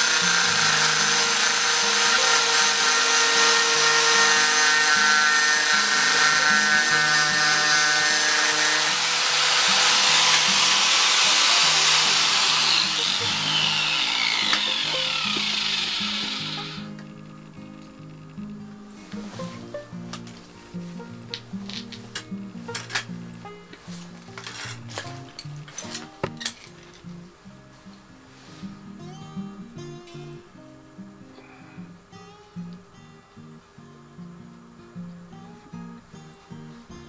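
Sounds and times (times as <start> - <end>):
angle grinder grinding metal: 0.0 - 17.2.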